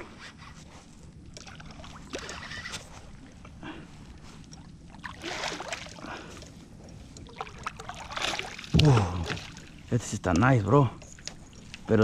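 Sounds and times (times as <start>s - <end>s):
fish splashing in water: 4.9s - 6.5s, 7.2s - 9.8s.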